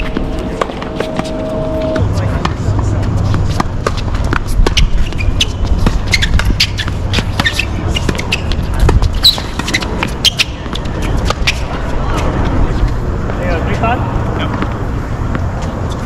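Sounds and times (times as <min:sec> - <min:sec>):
steady low rumble: 0:00.0 - 0:09.2
shoes squeaking on court: 0:00.0 - 0:13.0, 0:14.5 - 0:16.0
racket hitting tennis ball: 0:02.4 - 0:11.7.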